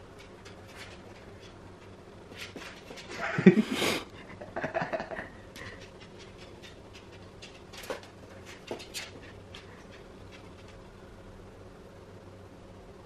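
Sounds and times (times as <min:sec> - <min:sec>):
faint steady hum: 0:00.0 - 0:13.0
dog claws tapping on wooden floor: 0:05.6 - 0:10.8.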